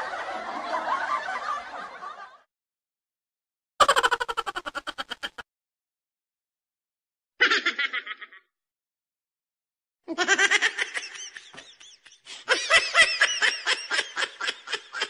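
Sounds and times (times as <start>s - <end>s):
person laughing: 3.8s - 5.4s, 7.4s - 8.5s, 10.1s - 15.0s.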